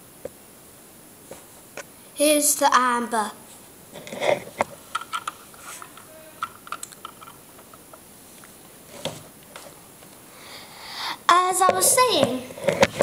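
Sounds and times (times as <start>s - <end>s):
plastic bricks clicking: 4.9s - 7.8s.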